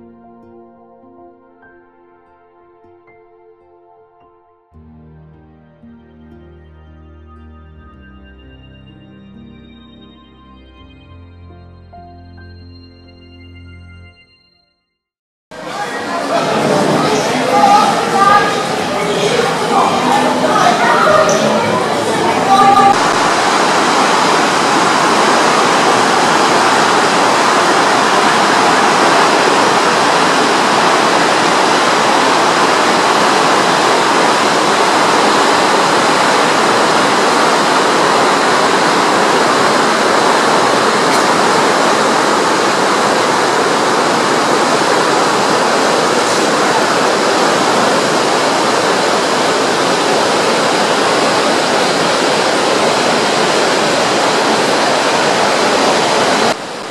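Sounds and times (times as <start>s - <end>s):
water rushing in ship wake: 15.5s - 56.9s.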